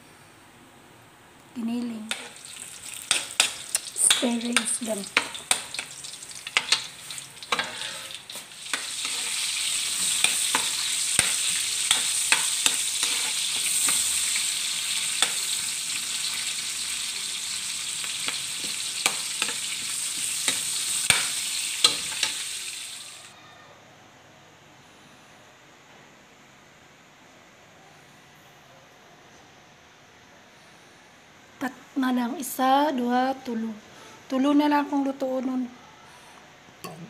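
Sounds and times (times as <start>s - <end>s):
garlic and onion sizzling in oil: 1.6s - 23.3s
metal spatula scraping a wok: 2.1s - 14.4s.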